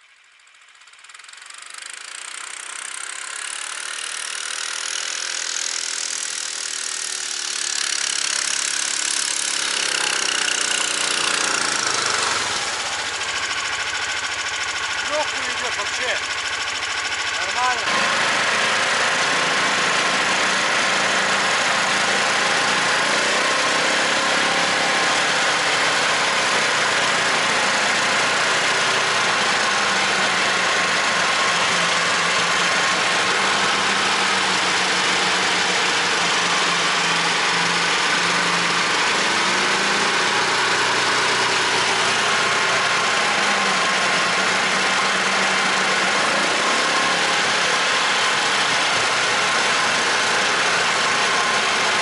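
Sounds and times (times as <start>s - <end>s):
snowmobile engine running: 1.5s - 52.0s.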